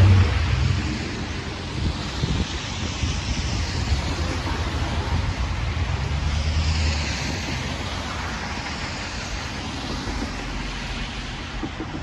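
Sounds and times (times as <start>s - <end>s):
tyres hissing on wet road: 0.0s - 12.0s
vehicle engines running: 0.0s - 12.0s.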